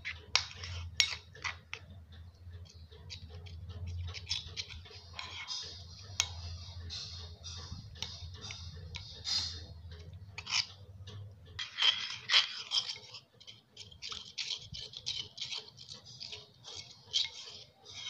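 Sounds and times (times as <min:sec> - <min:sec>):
spoon scraping ceramic bowl: 0:00.0 - 0:01.8, 0:02.6 - 0:18.0.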